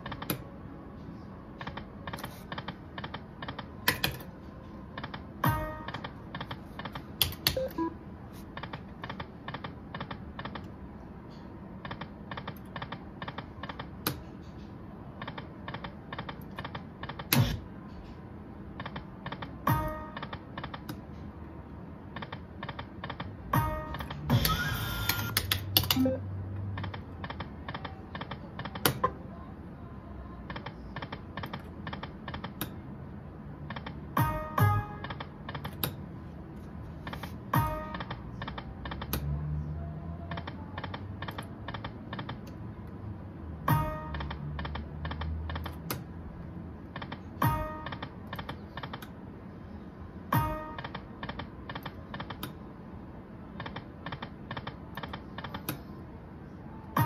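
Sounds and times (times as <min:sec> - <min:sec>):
slot machine clicking ticks: 0:18.8 - 0:21.0, 0:22.1 - 0:29.0, 0:33.6 - 0:36.0, 0:37.1 - 0:39.4, 0:40.3 - 0:42.6, 0:43.7 - 0:46.1, 0:46.8 - 0:49.2, 0:50.4 - 0:52.6.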